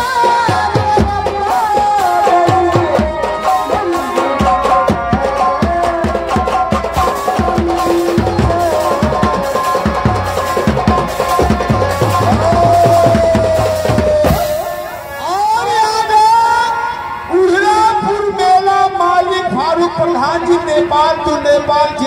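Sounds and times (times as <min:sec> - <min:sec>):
quick dense drumming: 0:00.0 - 0:15.1
sliding melody line: 0:00.0 - 0:15.3.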